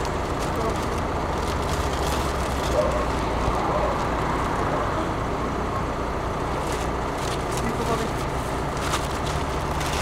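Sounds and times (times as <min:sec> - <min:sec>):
wrapping paper rustling: 0:00.0 - 0:04.7, 0:06.6 - 0:10.0.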